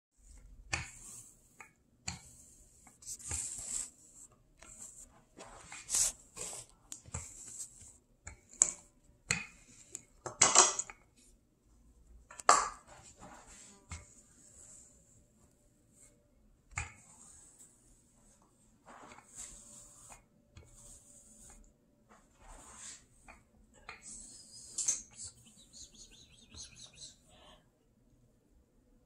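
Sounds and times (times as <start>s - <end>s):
rolling pin rubbing dough: 0.2s - 10.0s, 12.8s - 27.3s.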